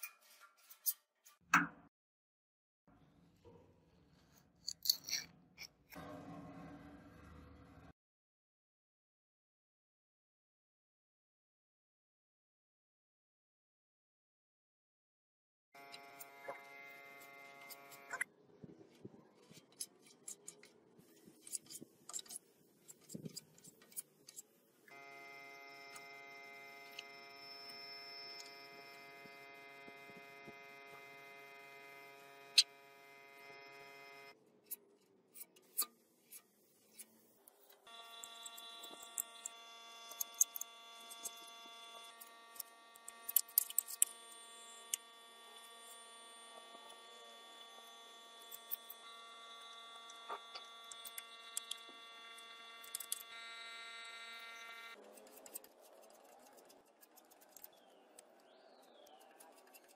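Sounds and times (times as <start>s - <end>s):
buzzing hum: 15.8s - 18.3s, 24.9s - 34.4s, 37.8s - 55.4s.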